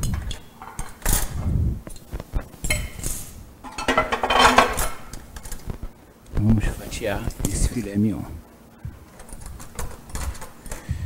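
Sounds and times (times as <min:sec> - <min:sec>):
cutlery clinking on dishes: 0:03.6 - 0:05.0.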